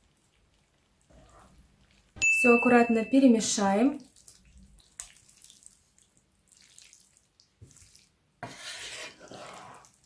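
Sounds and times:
wet squelching of pasta in sauce: 0:00.0 - 0:02.2, 0:04.0 - 0:10.0
spatulas scraping pan: 0:07.6 - 0:10.0.

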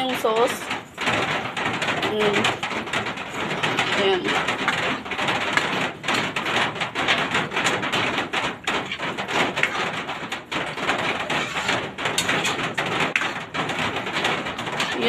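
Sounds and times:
spoon scraping steel pan: 0:11.2 - 0:12.6.

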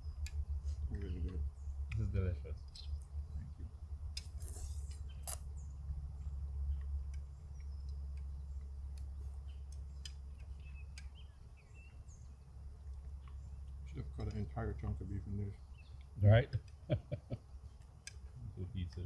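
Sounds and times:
faint bird chirps: 0:00.0 - 0:16.2
sharp clicks: 0:06.7 - 0:11.3, 0:17.8 - 0:19.0.

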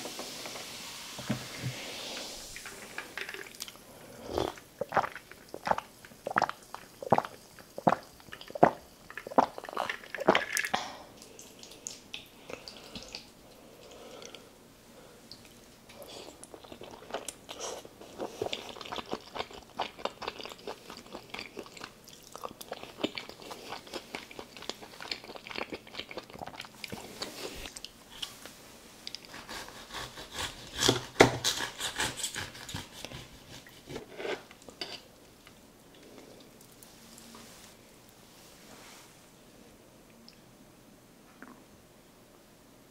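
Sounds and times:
person chewing pasta: 0:02.7 - 0:14.4, 0:15.3 - 0:28.3.

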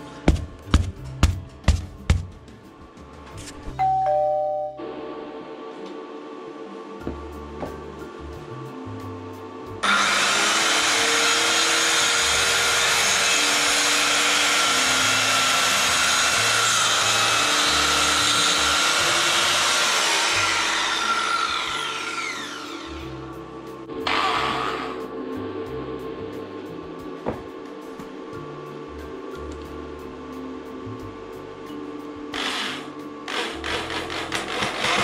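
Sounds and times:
circular saw cutting wood: 0:09.8 - 0:23.2, 0:32.3 - 0:35.0.

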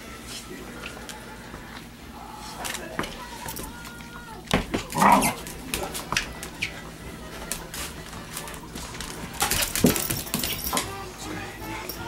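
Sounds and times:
dog paws clicking on floor: 0:02.6 - 0:11.0
dog vocalisation: 0:04.9 - 0:05.5.

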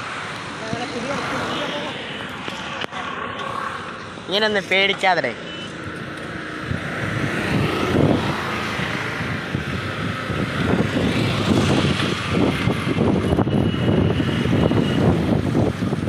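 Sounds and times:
wind buffeting microphone: 0:06.3 - 0:16.0.

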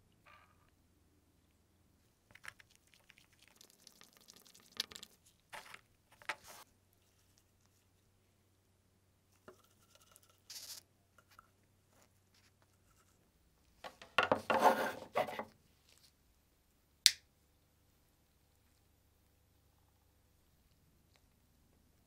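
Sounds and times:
lamp scraping on table: 0:14.5 - 0:15.4.

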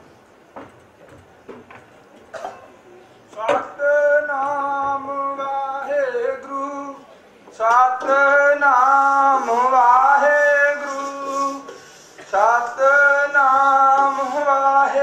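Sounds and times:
man singing: 0:03.3 - 0:15.0.

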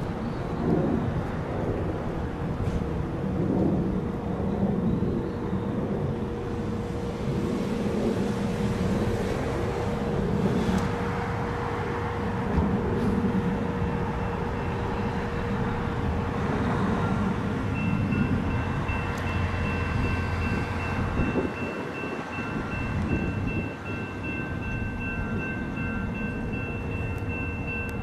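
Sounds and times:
train rumbling on track: 0:00.0 - 0:28.0
fast repeating high ringing tone: 0:17.7 - 0:28.0.

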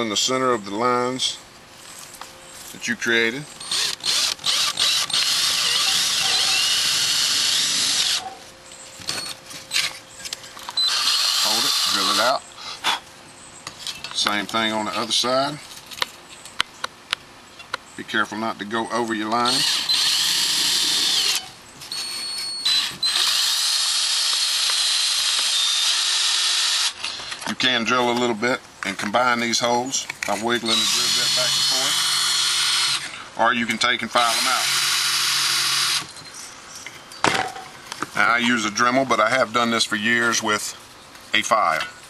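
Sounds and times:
electric drill boring metal: 0:03.6 - 0:08.2, 0:10.8 - 0:12.2, 0:19.5 - 0:21.5, 0:22.6 - 0:27.0, 0:30.7 - 0:33.1, 0:34.2 - 0:36.1.

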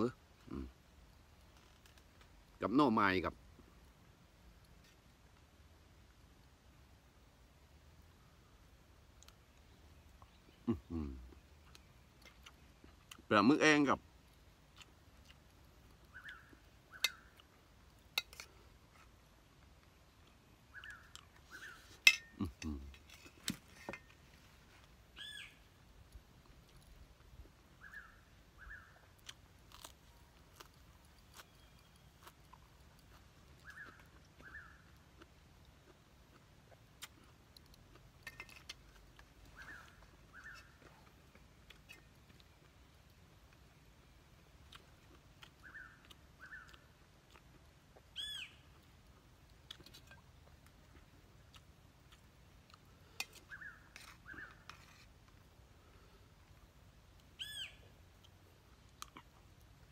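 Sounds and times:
quiet eating sounds: 0:00.0 - 0:59.9
metal spoon clinking on bowl: 0:22.1 - 0:22.3.

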